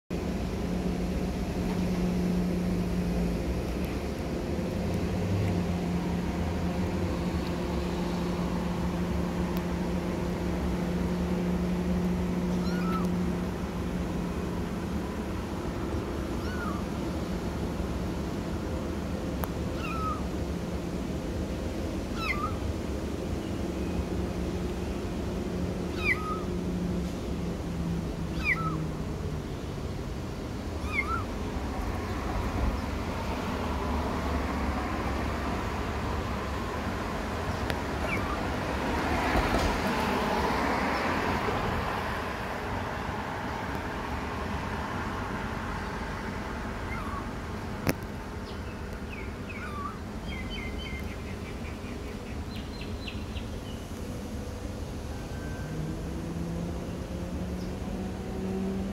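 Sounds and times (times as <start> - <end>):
kitten meowing: 12.5 - 13.1, 16.3 - 16.9, 19.8 - 20.3, 22.1 - 22.6, 25.9 - 26.5, 28.3 - 28.8, 30.8 - 31.4, 38.0 - 38.4, 46.9 - 47.3, 49.5 - 50.0
small bird chirping: 12.5 - 13.2, 16.4 - 16.9, 19.7 - 20.3, 22.1 - 22.6, 25.9 - 26.6, 28.3 - 28.9, 30.8 - 31.4, 37.9 - 38.5, 46.1 - 47.3, 48.4 - 53.8.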